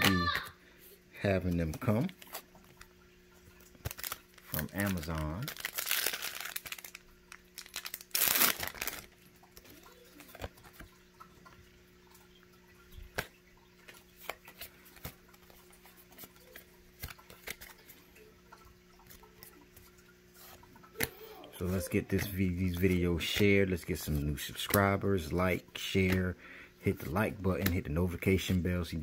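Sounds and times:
faint steady hum: 0:00.0 - 0:29.0
foil wrapper crinkling: 0:03.6 - 0:10.9, 0:13.1 - 0:18.0
trading cards clicking and rustling: 0:03.6 - 0:11.0, 0:13.0 - 0:18.2, 0:19.0 - 0:26.3, 0:26.9 - 0:29.0.

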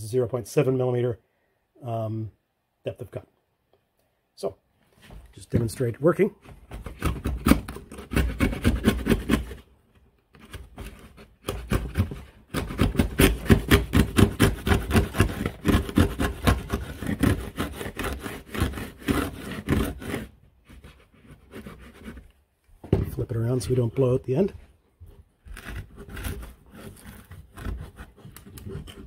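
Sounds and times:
router plane paring wood: 0:06.5 - 0:09.6, 0:10.4 - 0:22.3, 0:25.1 - 0:29.0.

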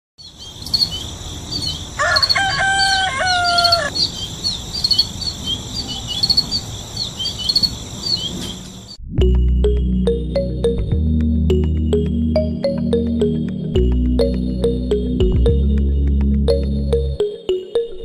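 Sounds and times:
small birds chirping: 0:00.2 - 0:09.0
rooster crowing: 0:01.9 - 0:04.0.

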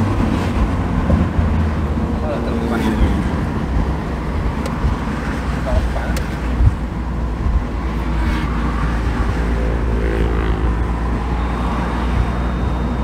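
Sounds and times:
car engine from inside cabin: 0:00.0 - 0:13.0
road noise: 0:00.0 - 0:13.0
thin high whine: 0:10.6 - 0:13.0.

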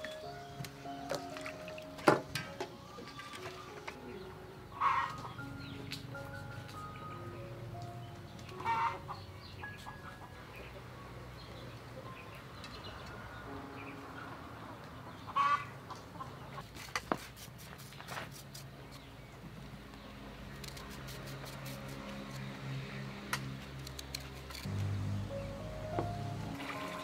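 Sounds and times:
chickens clucking: 0:02.9 - 0:05.4, 0:15.0 - 0:16.6
loud chicken call: 0:04.8 - 0:05.3, 0:15.3 - 0:15.8.

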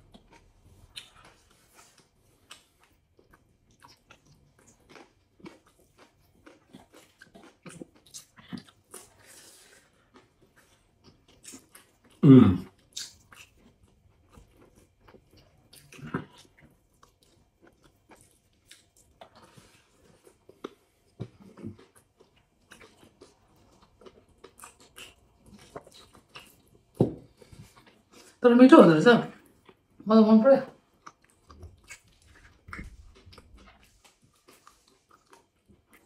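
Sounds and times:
chewing and lip-smacking: 0:00.0 - 0:28.4, 0:29.4 - 0:30.0, 0:30.8 - 0:36.0
person humming mm: 0:12.2 - 0:12.7.

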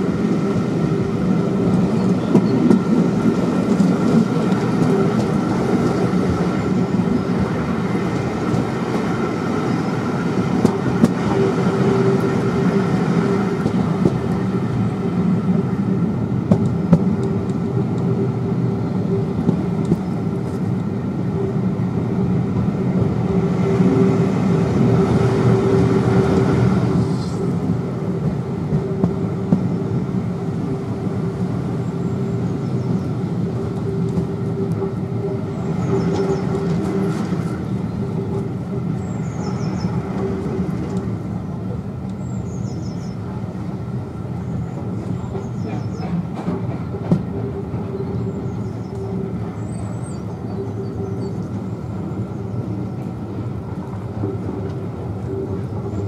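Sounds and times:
train carriage rumbling on rails: 0:00.0 - 0:56.0.

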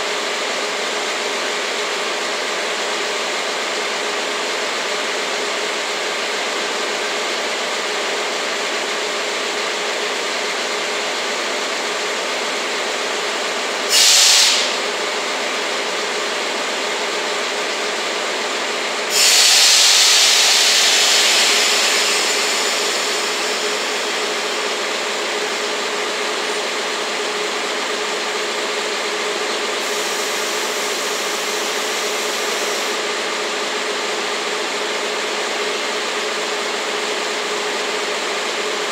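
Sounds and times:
compressed air hissing: 0:13.9 - 0:14.8, 0:19.1 - 0:24.7, 0:29.8 - 0:33.0
diesel engine idling: 0:20.2 - 0:33.0.

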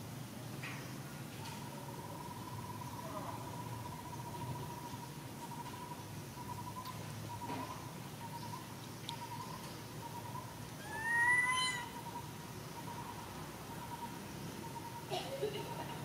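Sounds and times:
monkey high-pitched call: 0:10.2 - 0:12.2.

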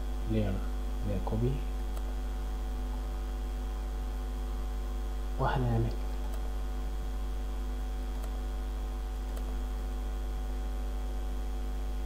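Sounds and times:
electrical mains hum: 0:00.0 - 0:12.0
faint mouse clicks: 0:01.9 - 0:02.2, 0:05.9 - 0:06.5, 0:08.1 - 0:08.4, 0:09.2 - 0:09.6.

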